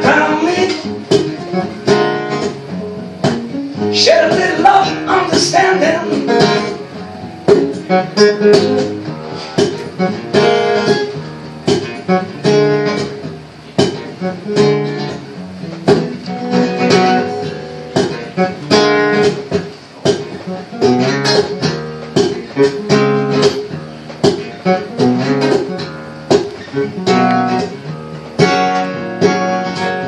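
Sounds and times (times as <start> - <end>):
acoustic guitars strumming: 0.0 - 30.0.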